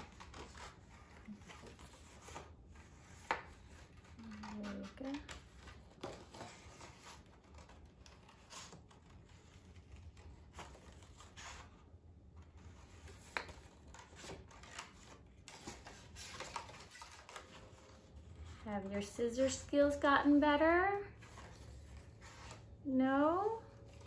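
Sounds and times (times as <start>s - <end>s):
paper rustling: 0.0s - 20.4s, 21.1s - 22.8s
scissors snipping paper: 3.2s - 11.4s.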